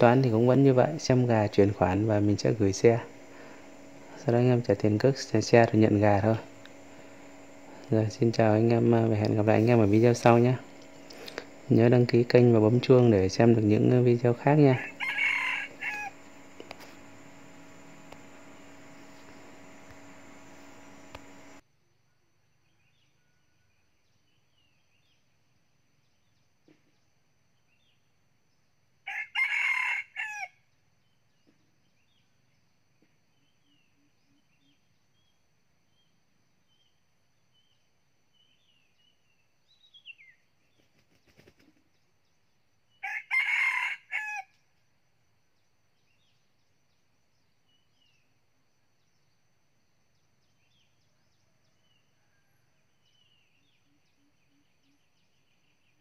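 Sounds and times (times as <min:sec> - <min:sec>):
small birds chirping: 0:00.0 - 0:21.6, 0:53.0 - 0:56.0
rooster crowing: 0:14.3 - 0:16.6, 0:29.0 - 0:30.6, 0:43.0 - 0:44.6.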